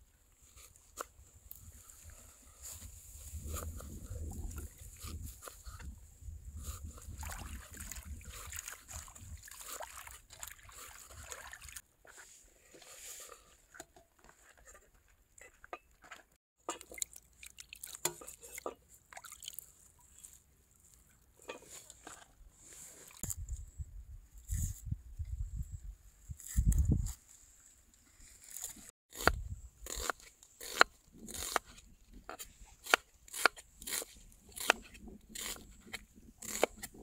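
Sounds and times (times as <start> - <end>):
water sloshing and trickling: 2.9 - 11.9, 16.6 - 23.3.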